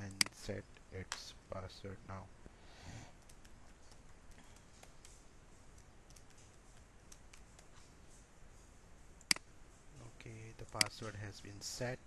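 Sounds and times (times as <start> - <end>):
faint keyboard keystrokes: 5.8 - 7.8.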